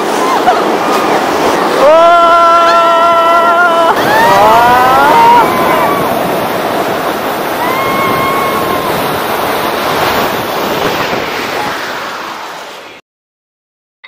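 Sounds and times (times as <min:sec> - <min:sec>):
wind rushing over microphone: 0:00.0 - 0:13.0
person crying out: 0:01.8 - 0:06.0.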